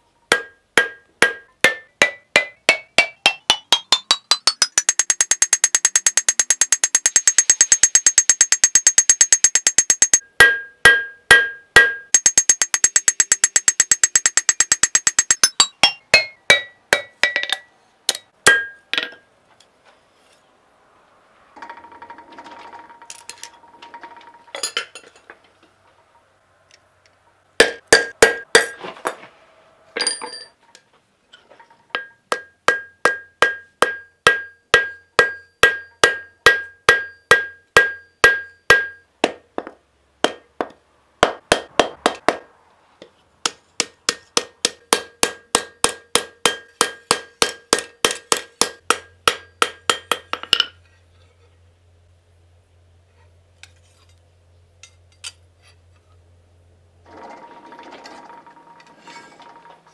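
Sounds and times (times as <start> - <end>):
hammer striking anvil: 0.3 - 19.2, 27.6 - 28.8, 31.9 - 42.4, 43.4 - 50.7.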